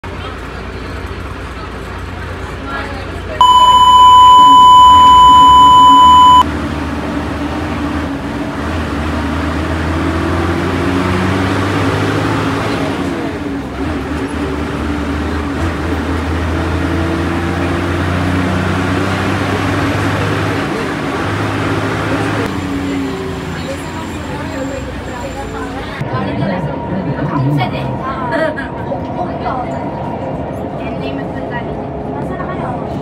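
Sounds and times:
bus engine running: 0.0s - 26.8s
bus cabin rumbling: 0.1s - 26.1s
test tone beep: 3.4s - 6.4s.

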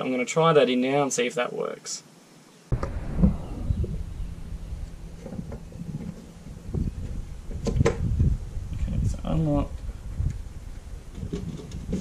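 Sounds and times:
low rumble: 2.7s - 11.2s.

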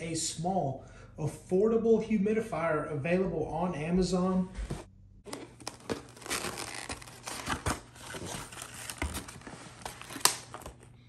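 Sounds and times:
packaging crinkling and rustling: 5.3s - 11.0s.

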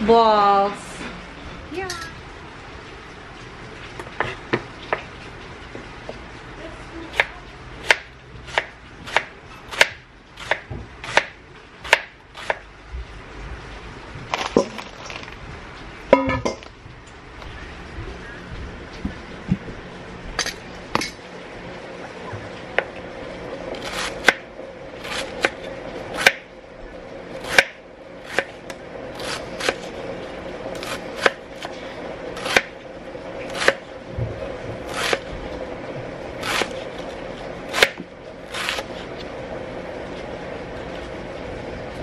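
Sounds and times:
knife slicing cabbage on plastic board: 7.2s - 12.6s, 29.2s - 29.9s, 30.8s - 31.7s, 33.5s - 33.8s, 34.8s - 35.3s, 36.4s - 39.2s.

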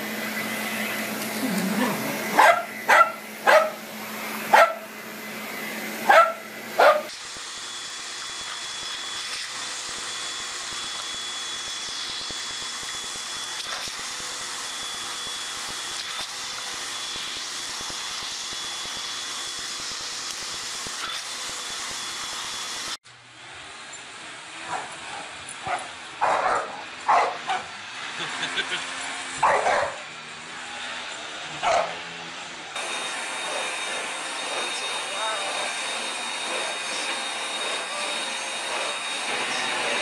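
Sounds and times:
vacuum cleaner running: 0.0s - 40.0s
dog barking: 1.8s - 3.8s, 4.5s - 4.9s, 6.1s - 7.1s, 25.6s - 27.7s, 29.4s - 30.0s, 31.6s - 32.0s.

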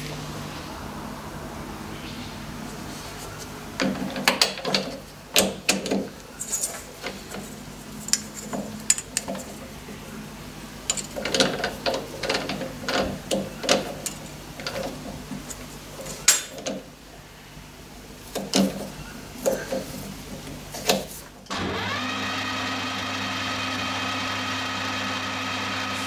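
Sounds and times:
lathe chuck metallic clicks and clunks: 3.8s - 7.5s, 10.9s - 16.9s.

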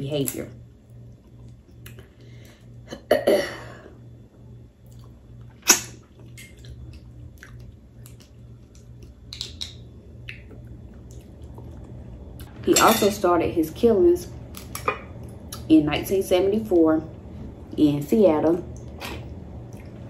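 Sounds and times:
steady low hum: 0.0s - 20.0s
chewing: 4.8s - 12.5s, 18.8s - 20.0s
crab shell snaps and clicks: 8.0s - 10.4s.

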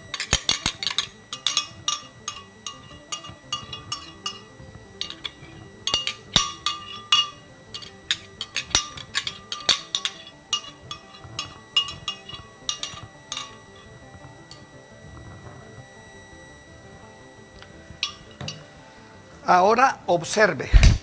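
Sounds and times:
metal spoon clinking on glass jar: 0.0s - 14.8s, 17.6s - 18.7s.

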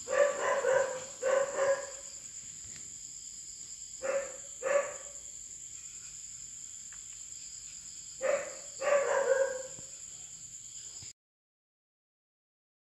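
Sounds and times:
dog barking: 0.0s - 2.1s, 4.0s - 5.2s, 8.2s - 9.9s
crickets chirring: 0.0s - 11.1s.

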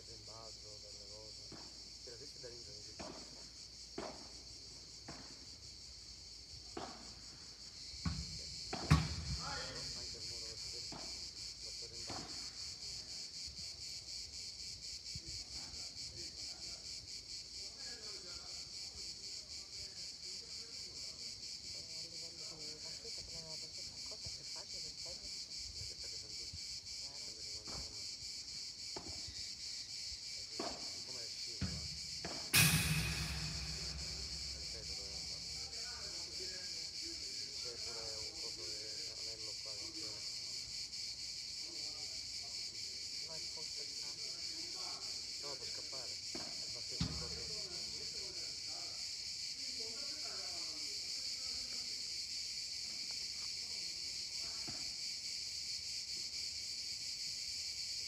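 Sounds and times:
cicadas droning: 0.0s - 58.0s
ball being struck: 8.8s - 9.4s, 32.5s - 35.8s.

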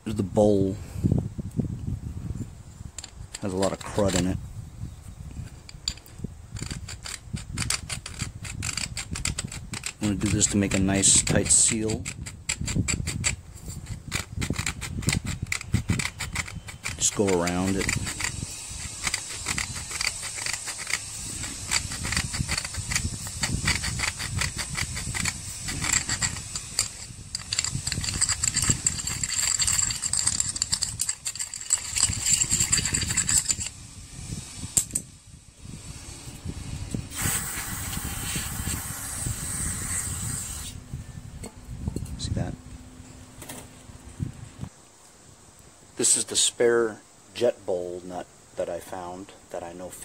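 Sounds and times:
screwdriver scraping metal bowl: 3.0s - 4.3s, 5.7s - 33.8s
aerosol spray hissing: 37.1s - 40.8s.

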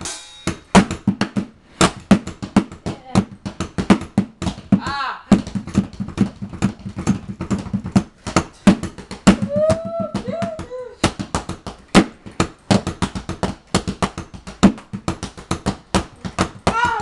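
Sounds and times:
drum kit playing: 0.0s - 1.5s.

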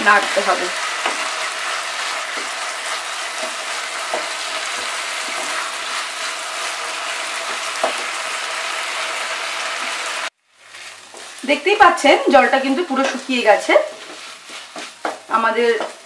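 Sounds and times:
curry sizzling in a pan: 0.0s - 16.0s
spatula stirring: 0.1s - 8.2s, 10.7s - 11.4s, 12.4s - 16.0s
spatula knocking on pan: 3.4s - 5.6s, 7.5s - 8.1s, 14.0s - 16.0s.

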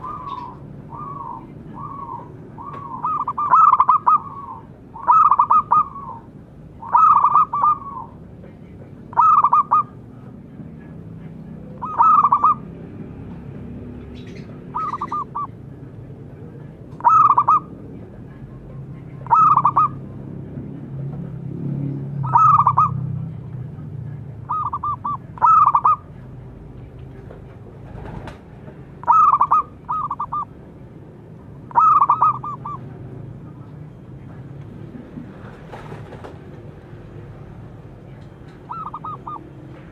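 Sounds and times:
dove cooing: 0.0s - 8.2s, 9.1s - 10.0s, 11.6s - 12.7s, 14.2s - 15.6s, 17.0s - 17.8s, 19.2s - 20.0s, 22.2s - 23.0s, 24.5s - 26.1s, 29.0s - 30.5s, 31.7s - 33.0s, 38.6s - 39.6s.

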